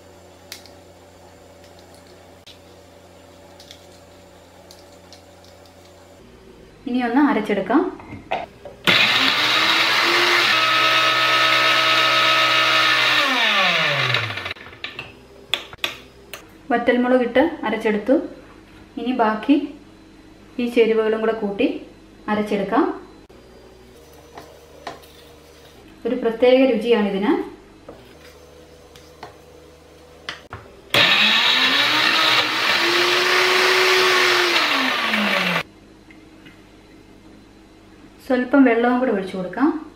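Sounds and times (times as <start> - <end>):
mixer grinder motor running: 8.8 - 14.8, 30.9 - 35.7.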